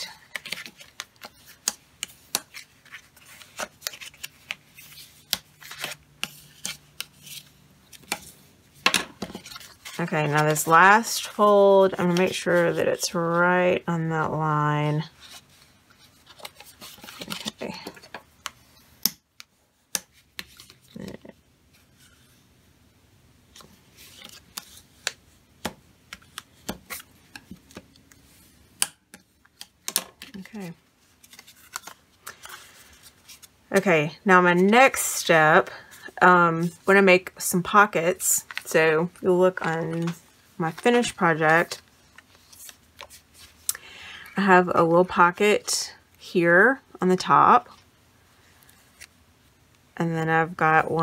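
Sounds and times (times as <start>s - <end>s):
paper handling: 0.1s - 12.8s, 15.2s - 18.6s, 29.5s - 33.6s.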